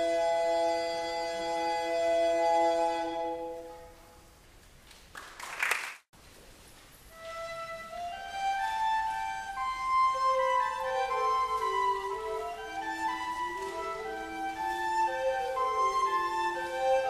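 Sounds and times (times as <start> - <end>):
instrumental background music: 7.1 - 17.0.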